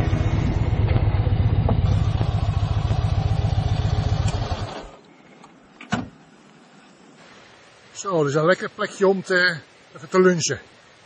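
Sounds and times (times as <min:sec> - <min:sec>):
motorcycle engine running: 0:00.0 - 0:05.0.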